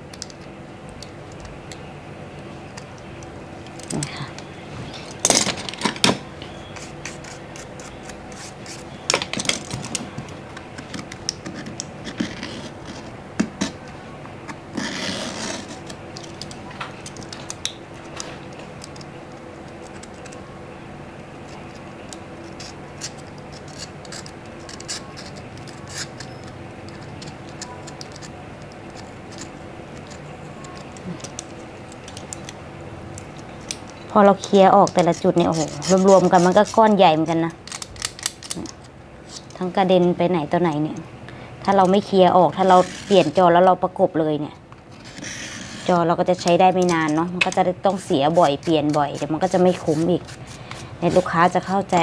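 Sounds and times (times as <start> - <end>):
hand tool scraping adhesive: 22.5 - 28.3, 46.8 - 51.7.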